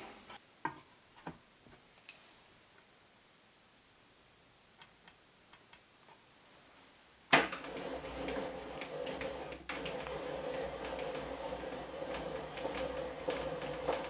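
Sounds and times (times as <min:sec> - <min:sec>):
table saw running: 0:07.6 - 0:14.0.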